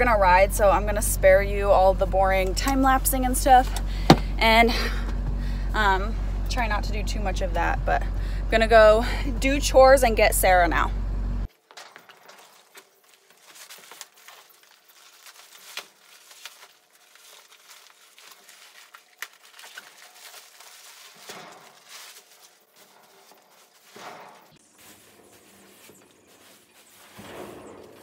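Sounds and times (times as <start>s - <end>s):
boots stamping on floor: 4.0s - 4.3s
shavings rustling: 11.4s - 28.0s
plastic bag crinkling: 11.5s - 27.2s.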